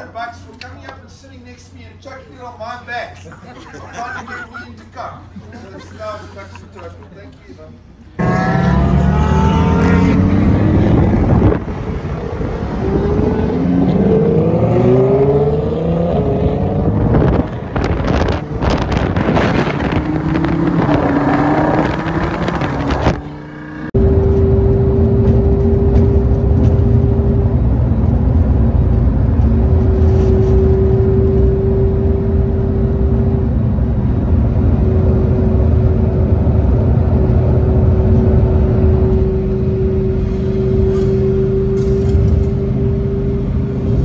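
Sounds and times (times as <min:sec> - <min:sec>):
sports car engine accelerating: 0:08.2 - 0:44.0
exhaust crackling and popping: 0:16.8 - 0:23.2
engine drone inside cabin: 0:23.9 - 0:44.0.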